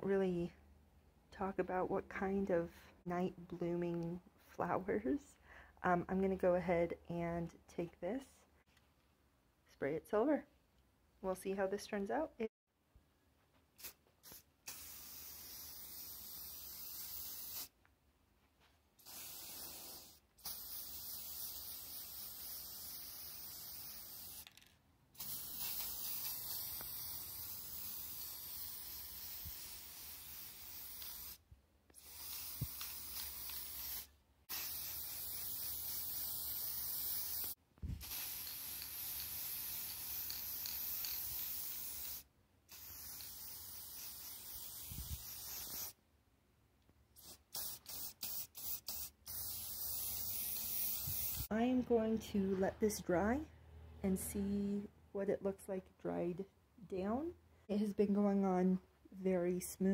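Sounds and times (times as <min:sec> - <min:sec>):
aerosol spray can hissing: 0:13.8 - 0:17.8, 0:19.0 - 0:24.6, 0:25.2 - 0:31.4, 0:32.0 - 0:46.0, 0:47.2 - 0:51.5.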